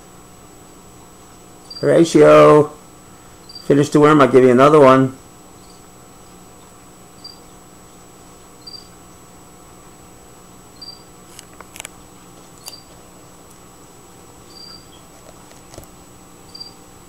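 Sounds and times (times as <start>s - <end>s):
faint steady hum: 0.0s - 17.0s
cricket chirping: 1.6s - 2.0s, 3.4s - 3.7s, 5.5s - 5.9s, 7.1s - 7.5s, 8.6s - 9.0s, 10.7s - 11.1s, 12.6s - 12.9s, 14.4s - 15.1s, 16.5s - 16.8s.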